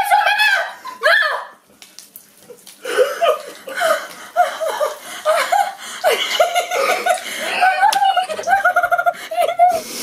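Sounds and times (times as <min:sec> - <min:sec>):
women laughing: 0:02.8 - 0:09.8.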